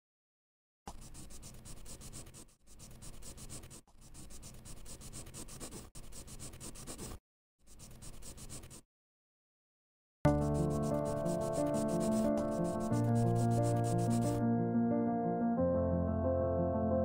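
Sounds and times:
pen scratching on paper: 0.9 - 8.8, 10.3 - 14.4.

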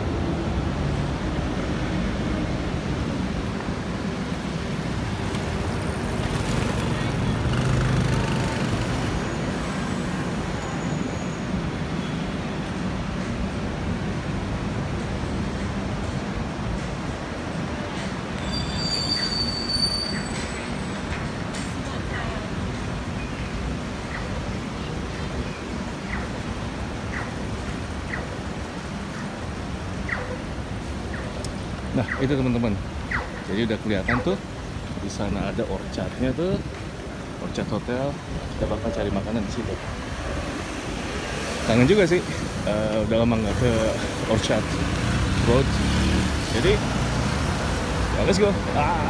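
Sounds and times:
road traffic rumble: 0.0 - 49.0
vehicle engine passing: 44.4 - 48.8.

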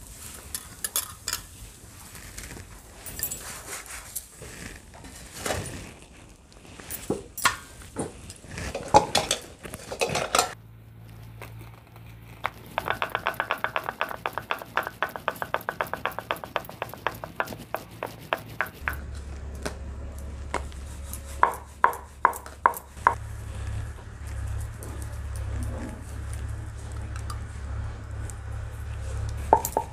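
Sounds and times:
steel dishes clattering: 8.7 - 10.6
rolling pin clacking on board: 12.7 - 19.1.

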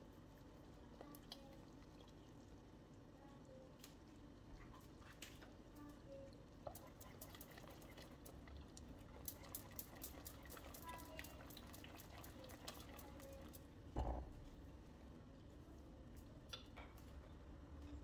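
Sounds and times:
whisk stirring thick soup: 6.6 - 13.7.

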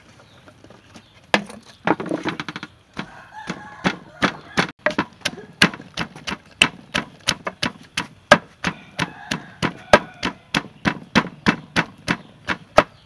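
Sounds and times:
pestle pounding in a mortar: 2.5 - 13.0.

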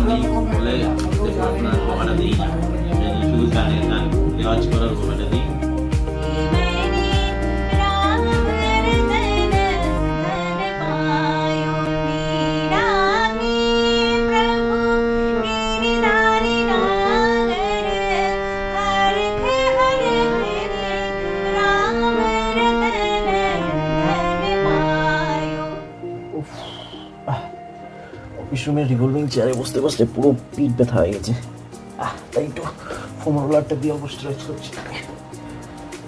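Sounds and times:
harmonium held notes: 0.0 - 29.2
woman singing: 6.1 - 26.3.

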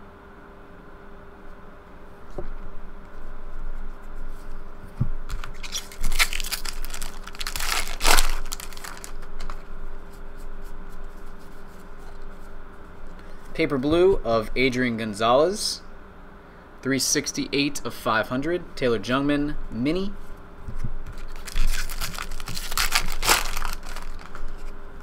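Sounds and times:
foil wrapper tearing and crinkling: 5.3 - 9.6, 21.2 - 24.7.

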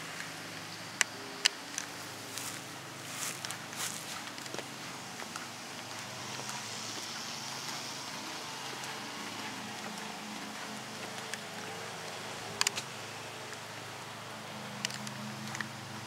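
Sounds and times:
sharp clicks: 12.6 - 13.0.

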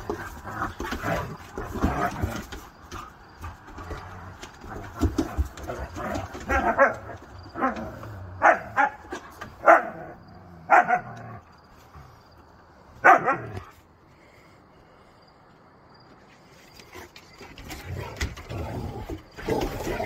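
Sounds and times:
dogs barking: 6.3 - 11.4, 13.0 - 13.7.

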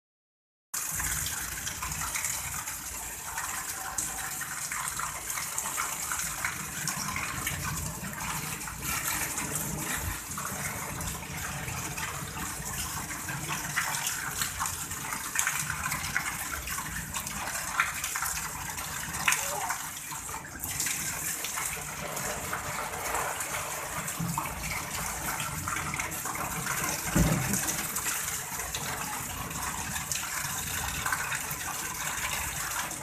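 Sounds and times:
heavy rain falling: 6.5 - 13.4, 19.1 - 19.9.

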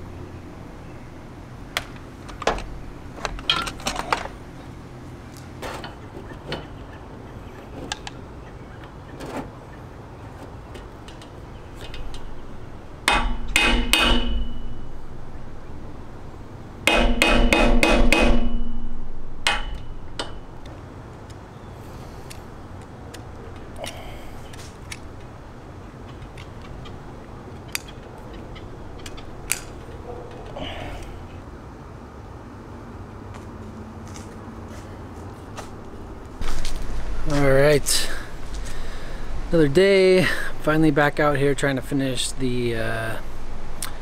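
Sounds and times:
hammer striking metal: 13.0 - 15.2, 16.8 - 20.5.

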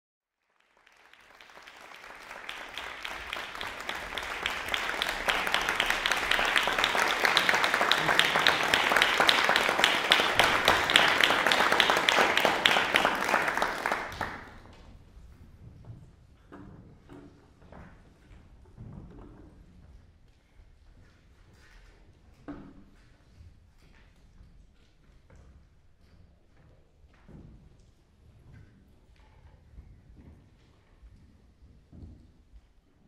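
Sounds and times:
audience applauding: 0.4 - 14.7.

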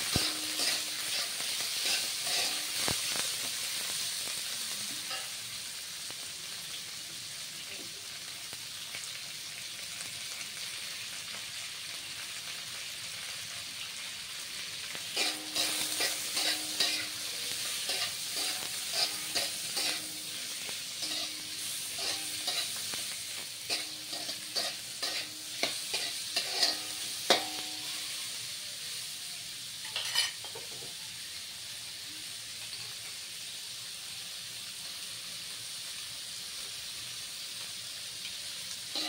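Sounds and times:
spatula scraping wok: 0.0 - 5.8, 15.0 - 28.6, 29.8 - 31.0
meat and onions sizzling in wok: 0.0 - 39.0.

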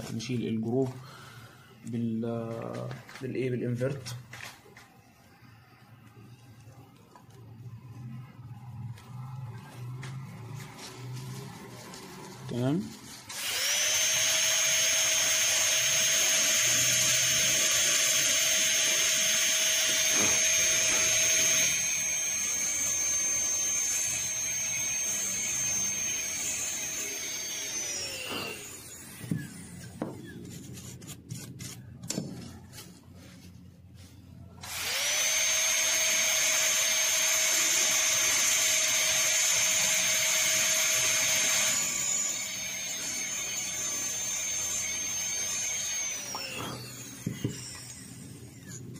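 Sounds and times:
dental drill whining: 12.4 - 30.4, 34.6 - 48.9.

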